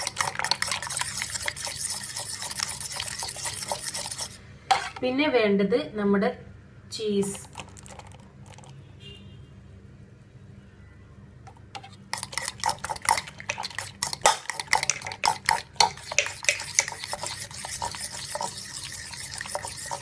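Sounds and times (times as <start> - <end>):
fork whisking egg in bowl: 0.0 - 5.0, 11.5 - 20.0.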